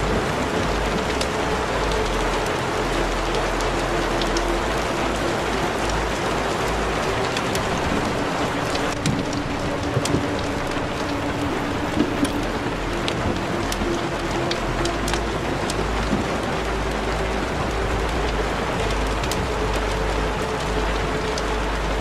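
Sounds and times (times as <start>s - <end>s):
faint sustained musical tones: 0.0s - 22.0s
rain-like hiss: 0.0s - 22.0s
small clicks and crackles: 0.0s - 22.0s.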